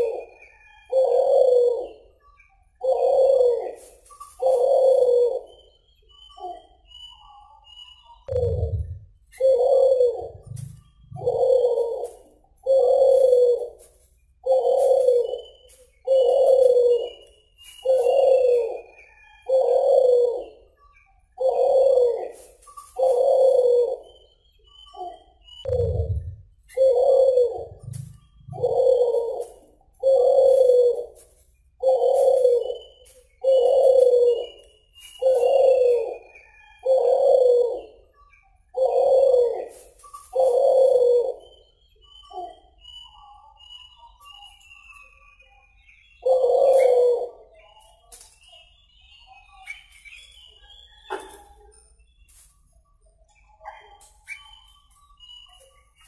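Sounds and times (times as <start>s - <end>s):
dove cooing: 0.0s - 2.2s, 2.8s - 6.7s, 8.3s - 20.7s, 21.4s - 38.1s, 38.7s - 43.0s, 46.2s - 47.6s, 51.0s - 51.5s
faint high chirps: 0.0s - 56.0s
low thump: 8.3s - 9.0s, 25.7s - 26.4s.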